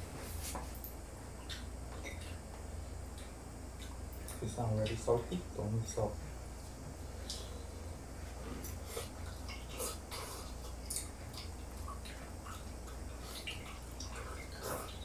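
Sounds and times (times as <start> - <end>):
low steady hum: 0.0 - 15.0
chewing smacks: 8.6 - 15.0.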